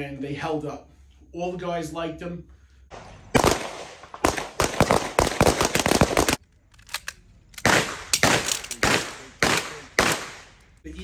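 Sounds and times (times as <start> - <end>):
rapid gunfire: 3.4 - 6.4, 7.6 - 10.5.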